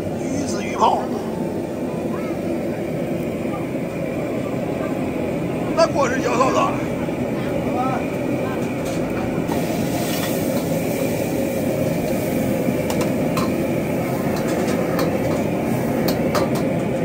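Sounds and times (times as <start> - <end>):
burner flame rushing: 8.0 - 17.0.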